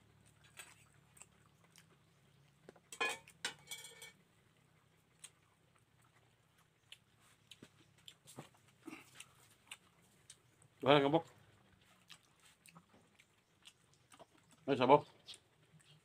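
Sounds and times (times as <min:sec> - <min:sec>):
dishes and utensils clattering: 0:02.9 - 0:04.2.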